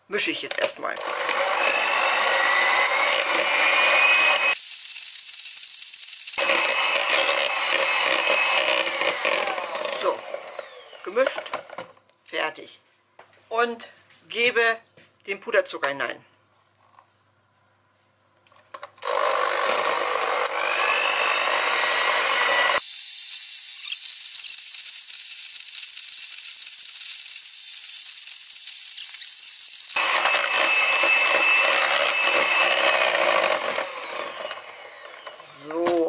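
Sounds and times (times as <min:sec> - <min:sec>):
electric hand mixer running: 0:01.0 - 0:11.0, 0:19.0 - 0:35.6.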